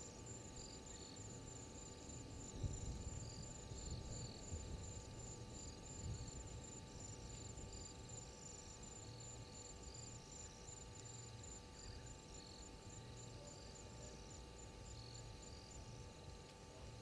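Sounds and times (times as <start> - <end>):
cricket chirping: 0.0 - 17.0
insects trilling: 0.0 - 17.0.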